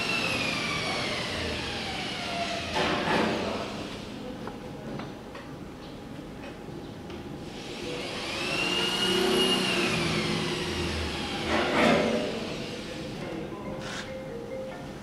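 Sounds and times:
motor whine rising and falling: 7.8 - 11.5.

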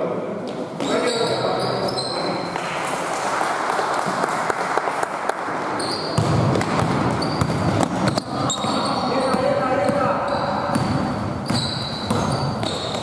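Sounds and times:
sneakers squeaking on floor: 0.4 - 2.6, 5.8 - 13.0
basketball bouncing: 5.8 - 13.0.

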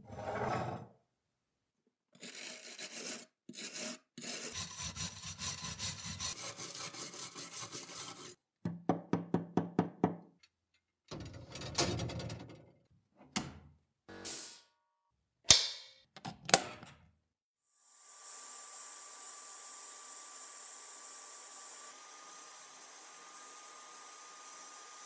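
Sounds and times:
bristle brush scrubbing metal: 2.2 - 8.4.

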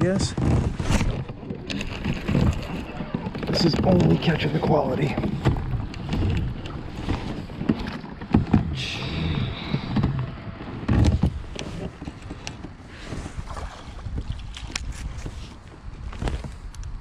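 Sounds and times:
clicks and knocks on rod and hull: 0.1 - 16.9.

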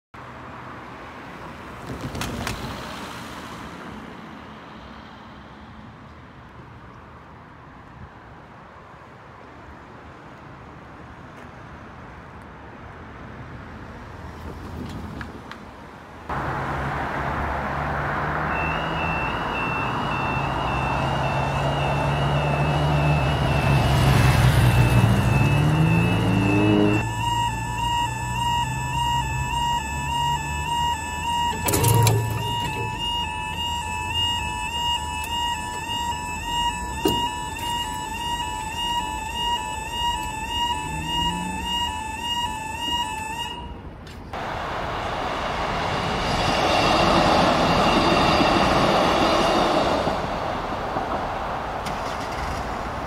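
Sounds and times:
car passing: 16.2 - 43.2, 44.4 - 53.0
vehicle engine accelerating: 16.3 - 36.4, 38.0 - 41.9
two-tone crossing alarm: 17.8 - 44.0, 45.9 - 50.6.

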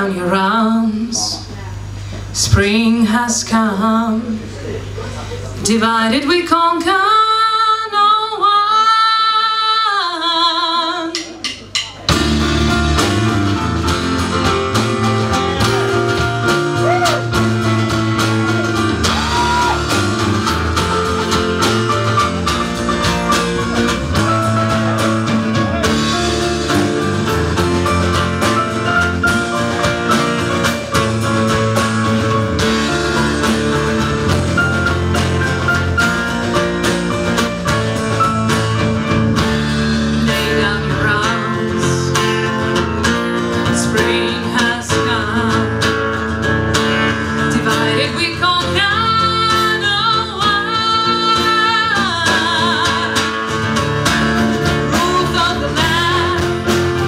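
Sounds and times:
woman singing: 0.0 - 1.4, 2.4 - 4.4, 5.6 - 11.2, 40.1 - 42.7, 43.6 - 46.1, 47.4 - 53.8, 54.6 - 57.0
live rock band: 10.5 - 57.0.

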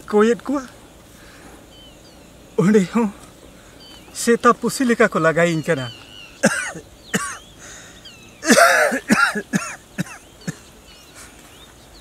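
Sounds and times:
man coughing: 6.4 - 7.4, 8.4 - 10.6.

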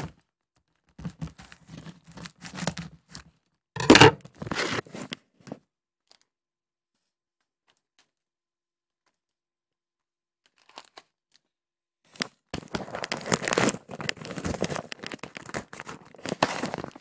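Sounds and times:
parcel wrapping tearing and crinkling: 0.8 - 3.4, 10.4 - 11.5, 12.1 - 17.0.

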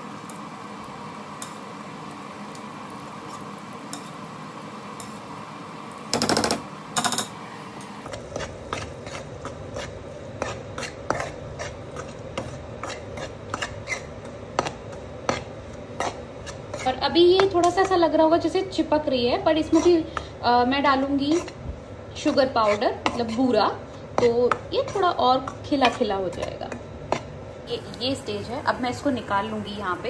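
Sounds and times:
spatula scraping steel pan: 8.1 - 18.0, 19.6 - 21.6, 22.2 - 27.3.

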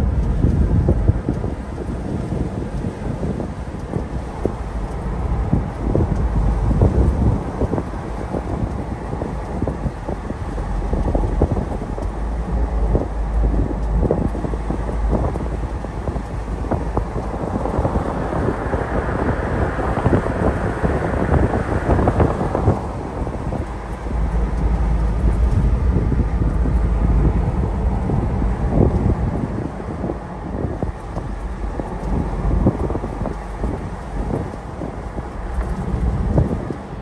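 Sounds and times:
low road noise rumble: 0.0 - 37.0
wind buffeting microphone: 0.0 - 37.0.

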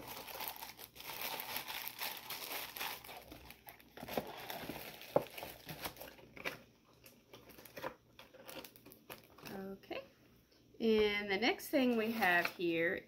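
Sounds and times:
packaging crinkling: 0.0 - 9.6.

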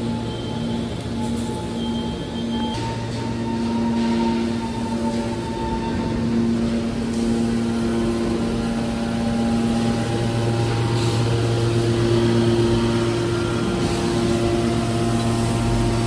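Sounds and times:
hydraulic power unit humming: 0.0 - 16.0.

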